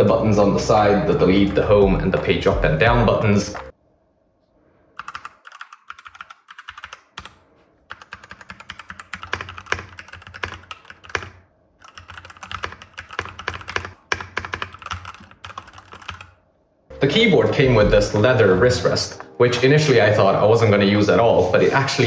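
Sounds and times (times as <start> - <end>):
mechanical keyboard clacking: 5.0 - 7.3, 7.9 - 16.4.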